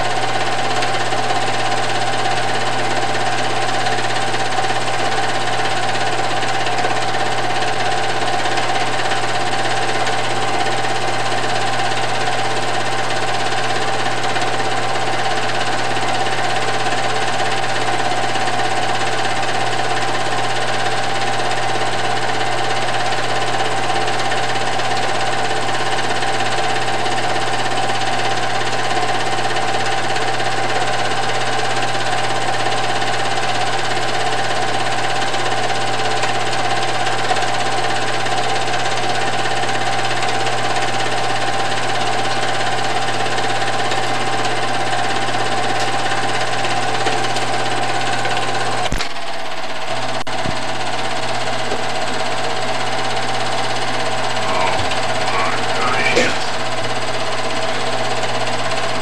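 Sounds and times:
film projector whirring: 0.0s - 59.0s
constant hum: 54.3s - 56.7s.

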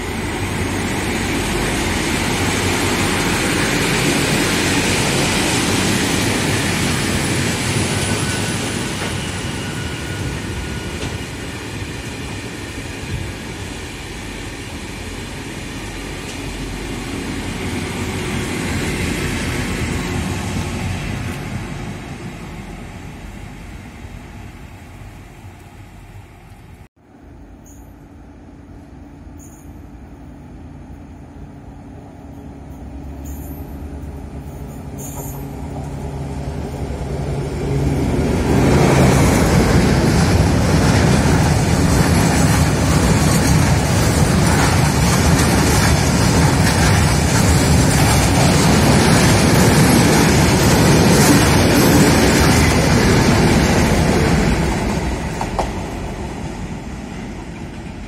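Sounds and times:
diesel locomotive engine hum: 0.0s - 58.0s
wagon wheels roaring on rails: 33.2s - 58.0s.

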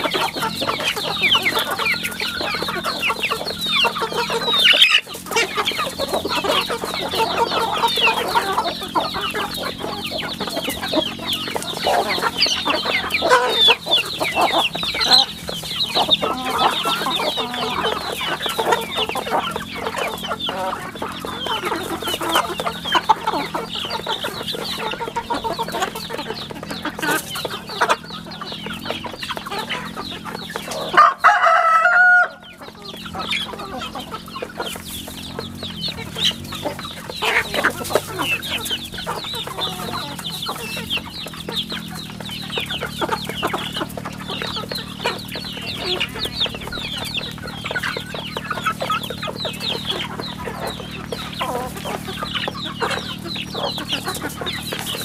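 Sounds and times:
chicks peeping and clucking: 0.0s - 55.0s
loud drawn-out chicken call: 30.6s - 34.9s.

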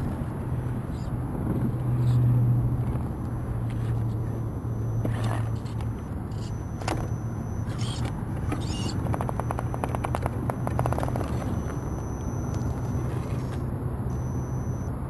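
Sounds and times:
electric motor hum: 2.6s - 14.9s
sharp clicks: 4.6s - 14.9s
rapid rattling ticks: 5.7s - 12.8s.

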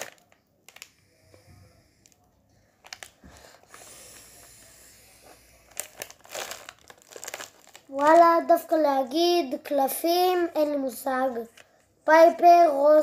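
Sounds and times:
foil packets rustling: 2.8s - 4.2s, 5.2s - 8.7s.

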